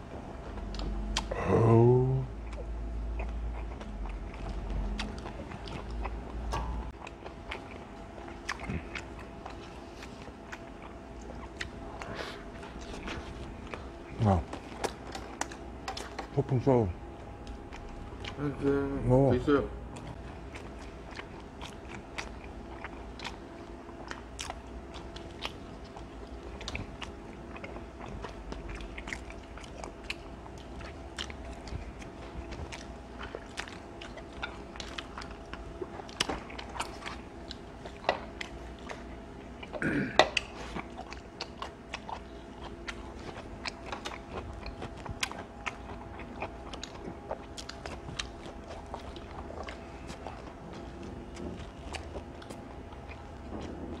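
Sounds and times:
chewing crunchy crust: 0.0s - 54.0s
low steady hum: 0.0s - 54.0s
throaty vocal sound: 1.1s - 2.3s, 39.8s - 40.5s.

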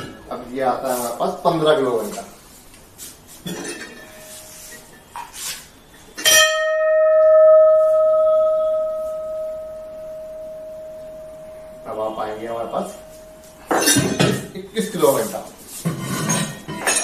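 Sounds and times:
brass bell ringing: 6.2s - 15.3s.

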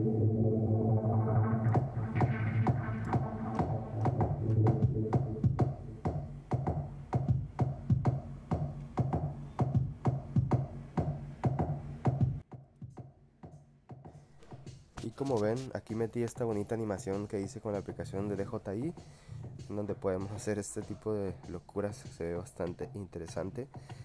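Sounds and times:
synthesizer bass notes: 0.0s - 7.0s
drum machine beat: 1.2s - 24.0s.

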